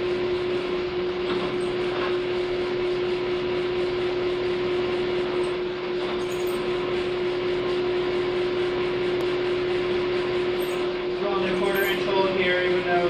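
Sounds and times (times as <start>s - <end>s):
drill press cutting steel: 10.4s - 13.0s.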